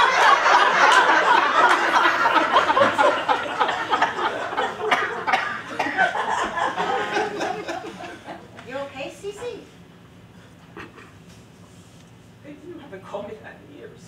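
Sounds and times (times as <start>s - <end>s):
audience laughing: 0.0s - 8.5s.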